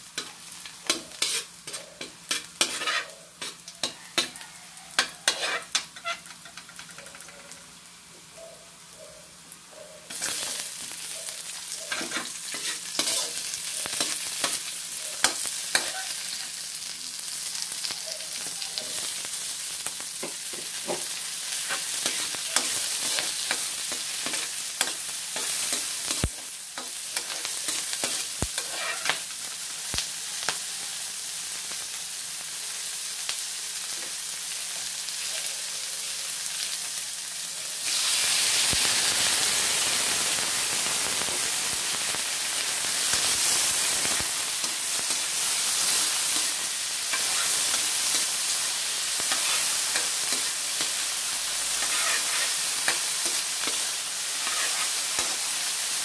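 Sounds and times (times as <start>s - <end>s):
vegetables sizzling in oil: 0.0s - 56.0s
metal spatula scraping pan: 0.9s - 4.3s, 5.0s - 6.4s, 27.2s - 29.2s, 51.7s - 53.4s, 54.4s - 55.0s.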